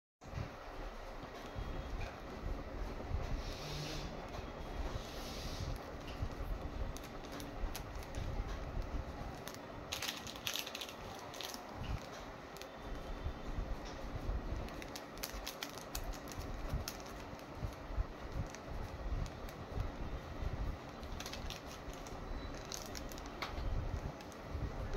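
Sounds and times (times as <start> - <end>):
plastic sleeves crinkling: 5.7 - 13.2, 14.5 - 20.0, 20.8 - 24.9.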